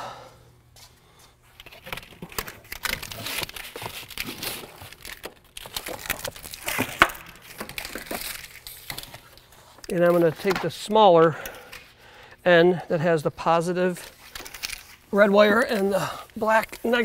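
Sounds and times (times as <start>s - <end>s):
plastic-covered wires rustling: 1.5s - 10.9s, 13.9s - 17.0s.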